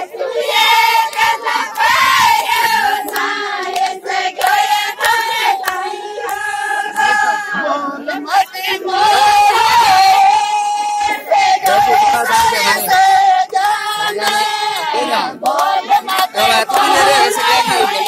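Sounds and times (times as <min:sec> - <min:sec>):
women singing folk song: 0:00.0 - 0:18.0.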